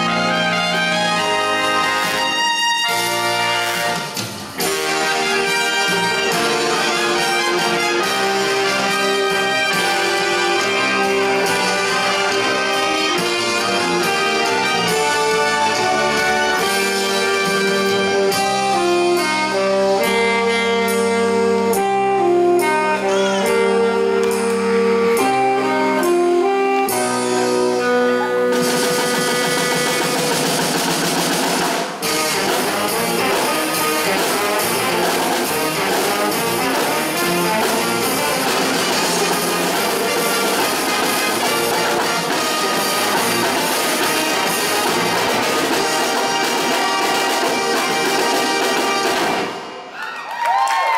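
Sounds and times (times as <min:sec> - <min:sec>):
marching drums: 0:00.0 - 0:18.6, 0:28.5 - 0:49.9
brass band playing: 0:00.0 - 0:50.0.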